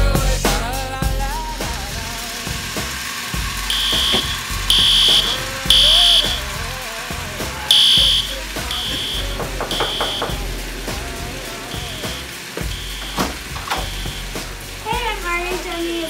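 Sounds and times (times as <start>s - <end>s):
background music: 0.0s - 16.0s
smoke alarm beeping: 3.5s - 6.8s, 7.7s - 14.4s.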